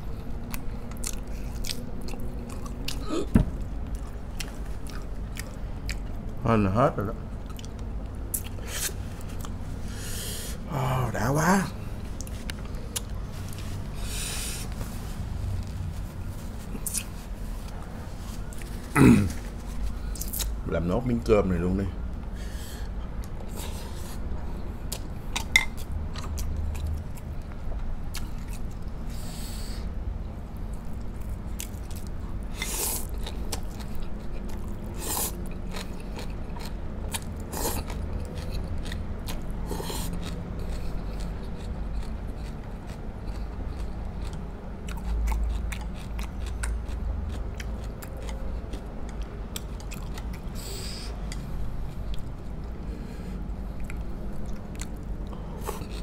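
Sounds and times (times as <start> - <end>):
chewing and biting food: 0.0 - 6.4, 7.2 - 9.7, 12.0 - 20.6, 22.8 - 29.1, 30.5 - 56.0.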